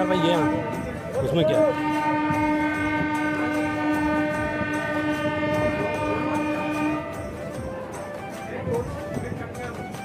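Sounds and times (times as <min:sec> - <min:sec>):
train horn blast: 0:00.0 - 0:07.4.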